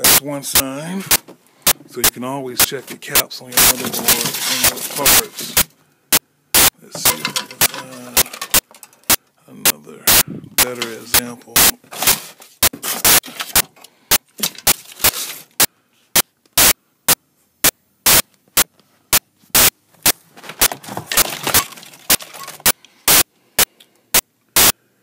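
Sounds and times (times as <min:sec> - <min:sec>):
rustling handling noise: 0:02.6 - 0:05.8, 0:06.8 - 0:09.2, 0:10.6 - 0:16.1, 0:18.7 - 0:22.8
circuit boards clacking: 0:03.5 - 0:05.8, 0:06.6 - 0:09.2, 0:13.0 - 0:15.7, 0:19.6 - 0:23.2.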